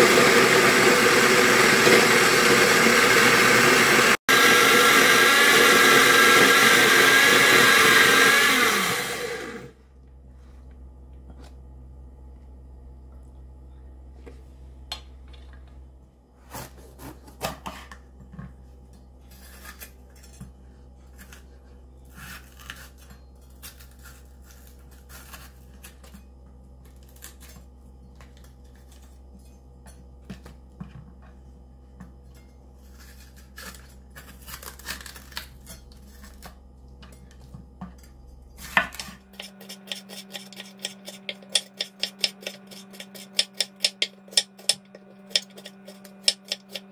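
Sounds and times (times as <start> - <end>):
knife chopping on wooden board: 38.8 - 46.8.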